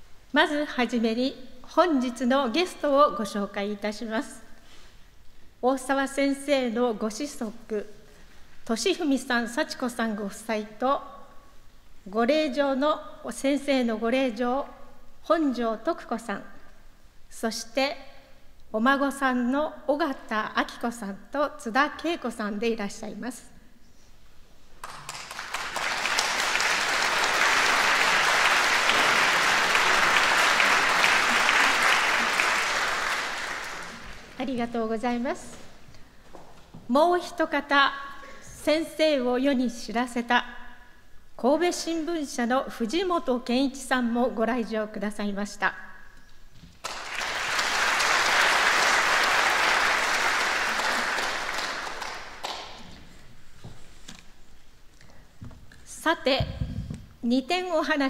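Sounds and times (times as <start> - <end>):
audience applauding: 24.8 - 34.4, 46.8 - 52.8.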